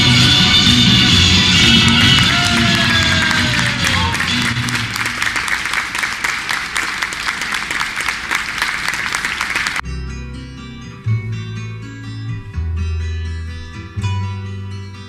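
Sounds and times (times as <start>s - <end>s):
acoustic guitar music: 0.0s - 5.0s, 9.8s - 15.0s
audience applause: 0.0s - 9.8s.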